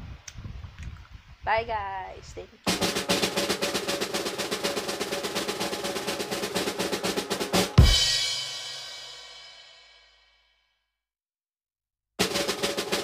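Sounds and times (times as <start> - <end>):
loud ringing drum hit: 2.7 - 9.3
snare drum roll: 2.7 - 9.3, 12.2 - 13.0.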